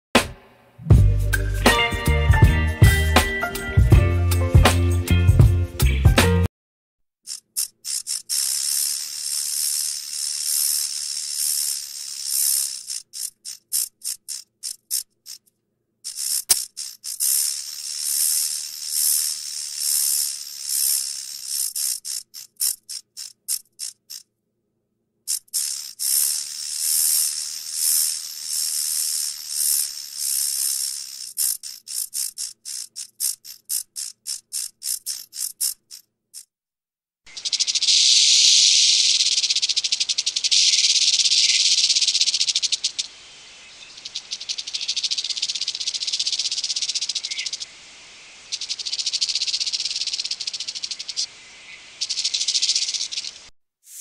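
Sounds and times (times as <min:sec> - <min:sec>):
rattlesnake rattling: 0:07.2 - 0:24.3, 0:25.3 - 0:36.5, 0:37.3 - 0:54.0
high rattle buzz: 0:07.3 - 0:15.5, 0:16.1 - 0:24.3, 0:25.3 - 0:36.5, 0:37.3 - 0:47.7, 0:48.4 - 0:51.3, 0:52.0 - 0:54.0.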